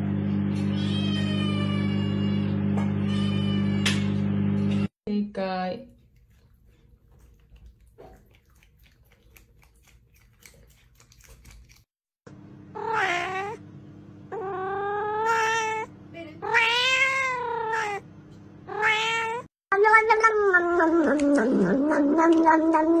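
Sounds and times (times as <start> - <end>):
cat meowing loudly: 0.7 - 3.9.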